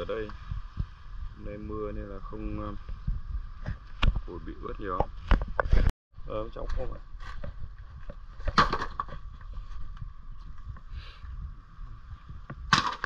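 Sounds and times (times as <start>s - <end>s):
sharp crack: 12.7s - 13.0s.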